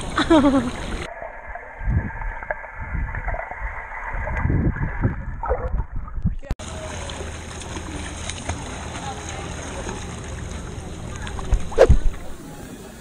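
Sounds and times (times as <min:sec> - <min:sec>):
water splashing: 0:00.0 - 0:12.8
muffled underwater swishing: 0:10.2 - 0:12.7.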